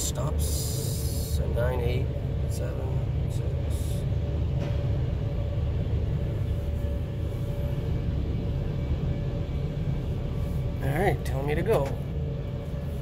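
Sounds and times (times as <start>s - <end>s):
faint steady hum: 0.0s - 13.0s
low rumble inside van: 0.0s - 13.0s.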